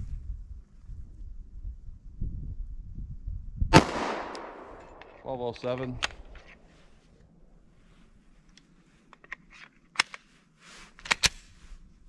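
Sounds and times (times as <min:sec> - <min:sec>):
pistol metallic clicks: 0:03.8 - 0:06.5, 0:11.0 - 0:11.4.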